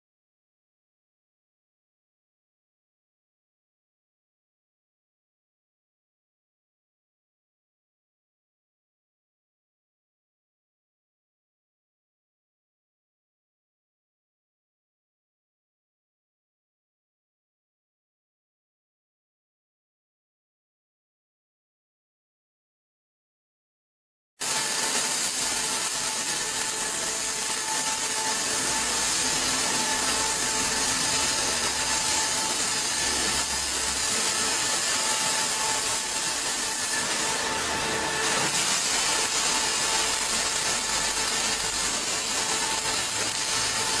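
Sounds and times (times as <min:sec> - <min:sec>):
welding arc hissing: 0:24.4 - 0:44.0.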